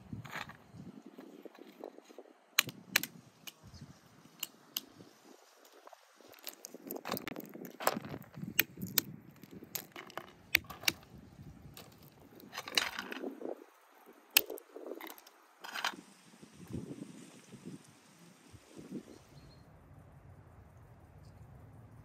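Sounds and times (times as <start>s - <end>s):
walnut shells cracking: 5.6s - 11.1s, 14.3s - 15.9s.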